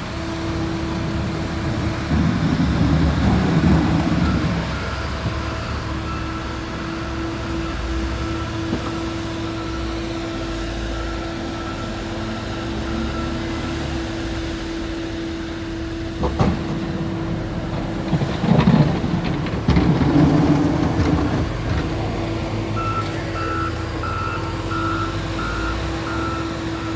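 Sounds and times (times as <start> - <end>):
heavy machinery engine hum: 0.0 - 26.9
rumbling and clatter: 0.2 - 6.1, 16.0 - 23.6
backup alarm beeping: 22.8 - 26.9.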